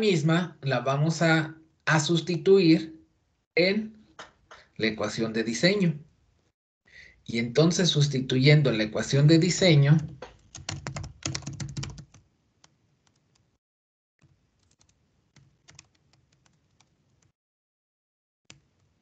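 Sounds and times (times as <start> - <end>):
computer keyboard typing: 10.2 - 13.4, 14.6 - 17.3.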